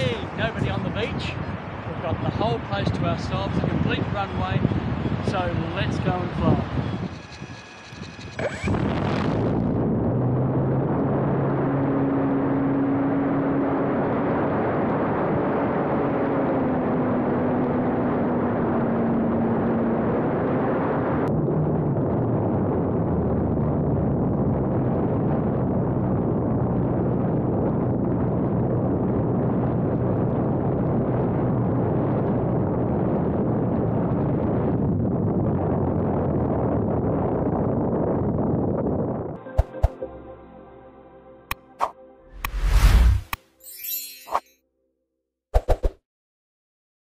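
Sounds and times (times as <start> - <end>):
wind rush: 0.0 - 39.9, 41.8 - 43.4
model plane motor and propeller: 5.4 - 9.4.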